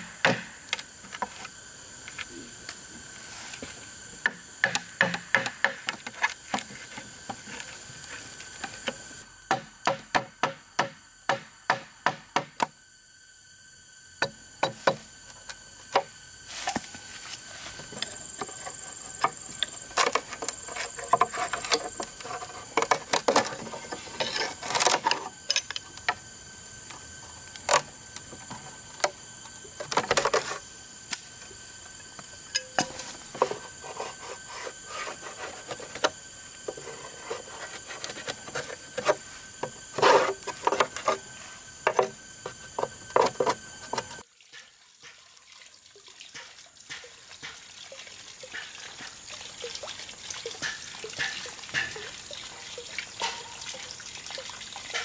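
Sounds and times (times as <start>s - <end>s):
chisel scraping bamboo: 17.9s - 25.8s, 32.8s - 44.2s.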